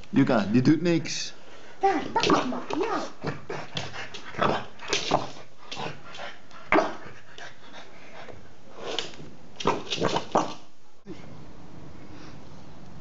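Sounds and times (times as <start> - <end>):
dog panting: 1.5 - 8.9.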